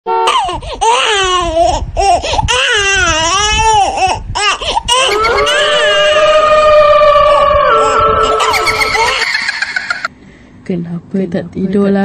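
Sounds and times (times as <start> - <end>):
person wailing and sobbing: 4.9 - 6.6, 7.6 - 10.1.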